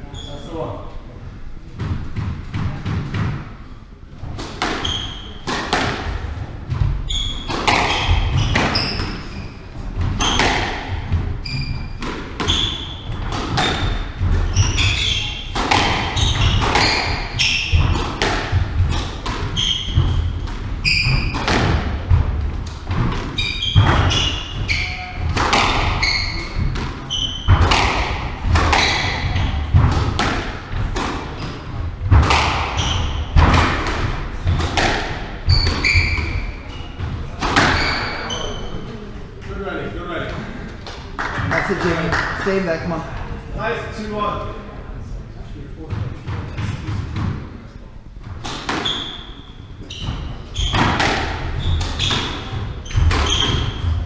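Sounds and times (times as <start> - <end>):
squash ball hitting racquets and walls: 1.7 - 38.9, 45.8 - 54.0
shoes squeaking on hardwood floor: 4.7 - 5.6, 6.6 - 39.0, 48.4 - 54.0.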